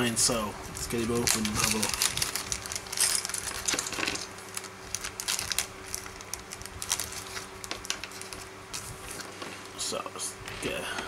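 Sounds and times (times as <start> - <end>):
plastic bag crinkling: 0.8 - 9.7
metal parts clinking: 1.2 - 4.3.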